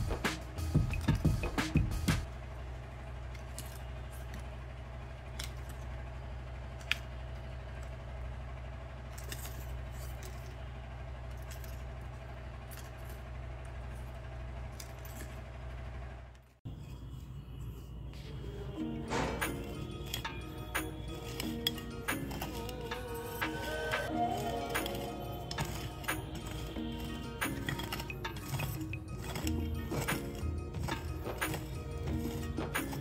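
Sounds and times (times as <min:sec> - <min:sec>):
steady low hum: 0:00.0 - 0:33.0
pruning shears clicking: 0:05.2 - 0:05.9, 0:18.1 - 0:33.0
pruning shears snipping stem: 0:19.0 - 0:33.0.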